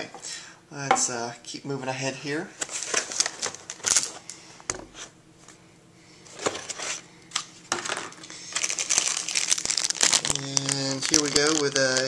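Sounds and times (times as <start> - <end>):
plastic bag crinkling: 2.8 - 4.2, 7.8 - 12.0.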